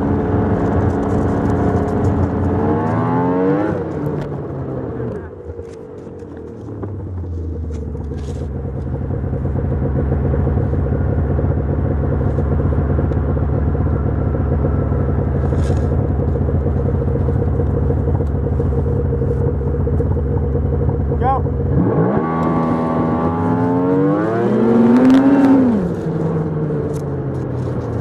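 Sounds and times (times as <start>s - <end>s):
snowmobile engine: 0.0s - 28.0s.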